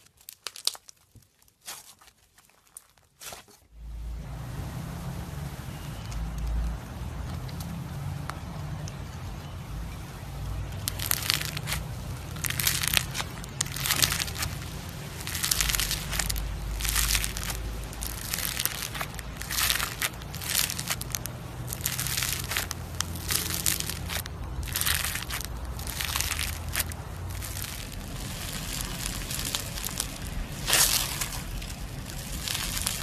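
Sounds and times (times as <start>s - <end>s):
foam beads crackling when squeezed: 0.0s - 3.6s, 10.3s - 33.0s.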